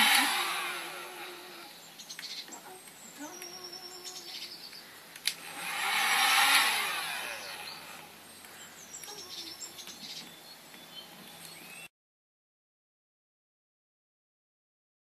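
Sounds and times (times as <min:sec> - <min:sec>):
heat gun blowing: 0:00.0 - 0:01.8, 0:05.2 - 0:08.2
birds chirping: 0:00.0 - 0:11.9.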